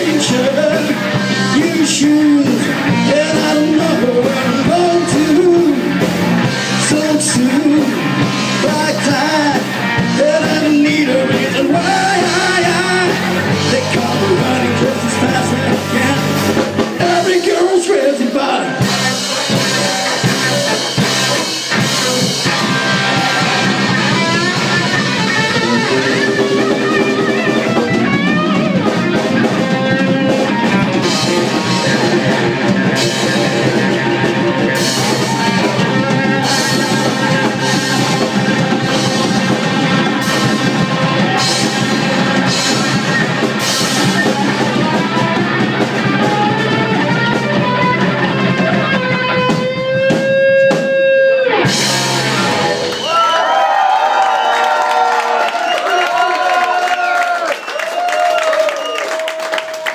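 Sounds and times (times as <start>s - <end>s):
bass guitar: 0.0s - 59.9s
drum kit: 0.0s - 59.9s
electric guitar: 0.0s - 59.9s.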